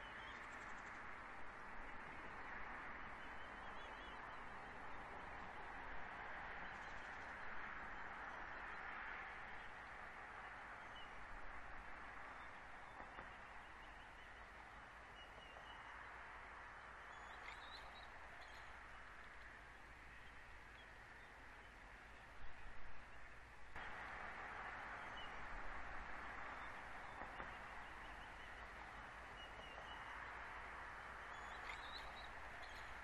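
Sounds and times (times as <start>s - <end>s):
faint outdoor background hiss: 0.0s - 33.0s
distant bird chirps: 16.9s - 18.8s, 26.4s - 33.0s.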